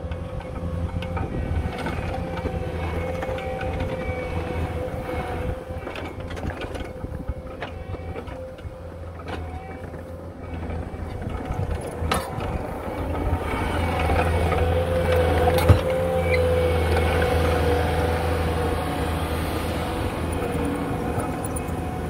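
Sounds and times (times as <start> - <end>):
diesel engine under load: 0.0 - 22.0
scraping over loose dirt: 0.0 - 22.0.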